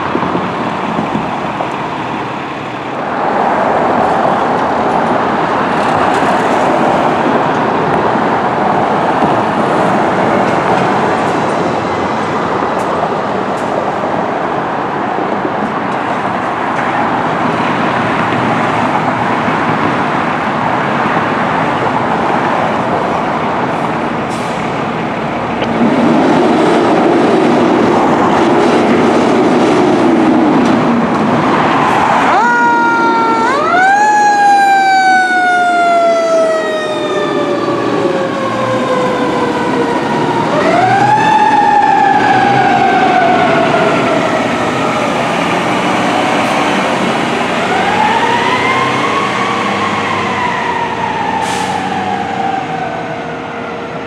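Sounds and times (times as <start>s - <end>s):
fire truck engine pulling away: 20.6s - 25.9s, 26.5s - 54.0s.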